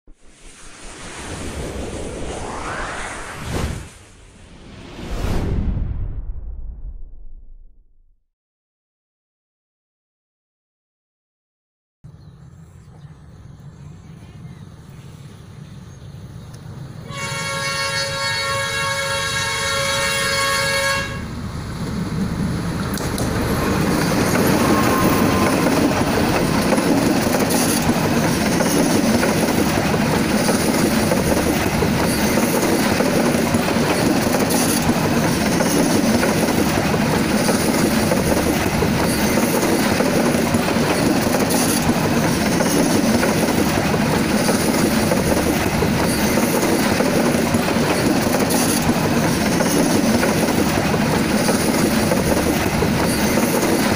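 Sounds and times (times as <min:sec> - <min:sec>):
train wheels rumbling on rail: 0:16.5 - 0:53.9
locomotive horn: 0:17.0 - 0:21.3
rail joint clicks: 0:21.8 - 0:53.9.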